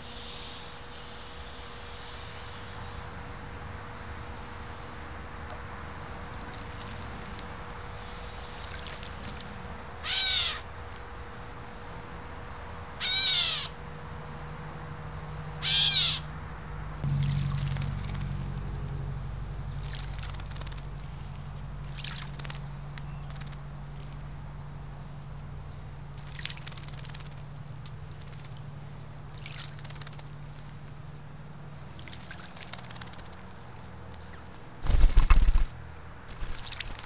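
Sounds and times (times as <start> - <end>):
faint splashes of bird bathing: 6.4 - 9.6, 17.1 - 18.6, 19.7 - 24.3, 26.2 - 28.7, 29.3 - 30.8, 31.7 - 33.6, 36.3 - 37.0
bird mew calls: 10.0 - 10.7, 13.0 - 13.8, 15.6 - 16.3.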